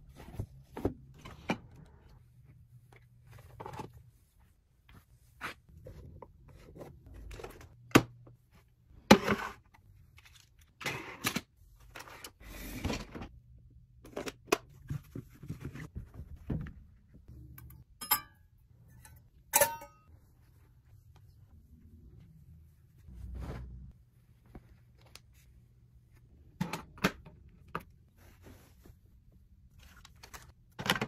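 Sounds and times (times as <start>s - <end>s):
metallic rings: 18.0s - 20.1s
rustling scrapes: 22.9s - 24.6s.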